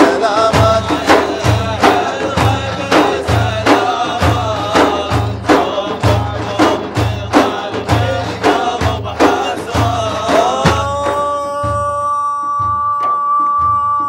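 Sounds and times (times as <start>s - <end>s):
frame drums beating: 0.0s - 14.0s
men chanting: 0.0s - 14.0s.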